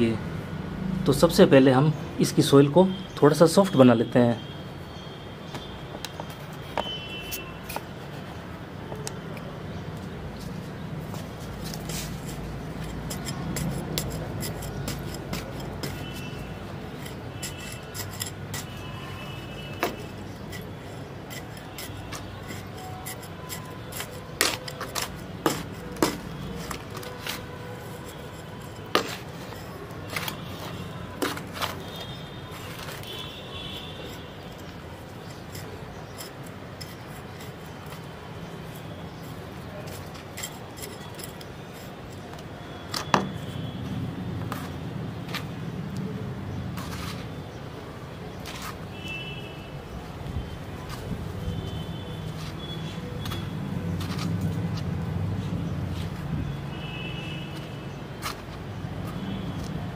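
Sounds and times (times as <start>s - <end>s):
metal hook scraping dry soil: 11.6s - 42.7s.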